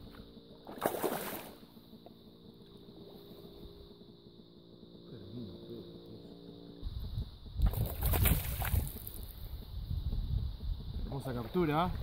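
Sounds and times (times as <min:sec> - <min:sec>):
steady low hum: 0:00.0 - 0:12.0
fish splashing in water: 0:00.7 - 0:01.6, 0:07.6 - 0:09.3.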